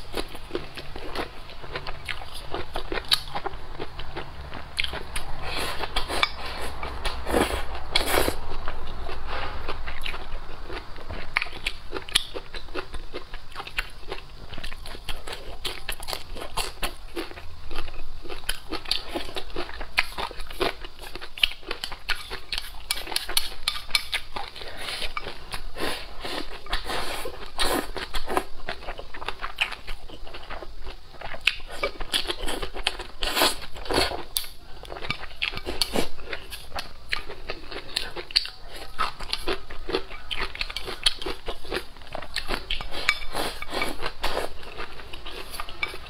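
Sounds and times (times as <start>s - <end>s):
close chewing and crunching: 0.0s - 46.0s.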